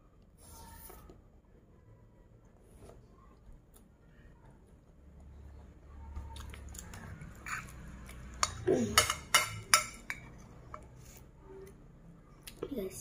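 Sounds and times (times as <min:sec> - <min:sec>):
metal spoon clinking on a dish: 0:07.4 - 0:10.9.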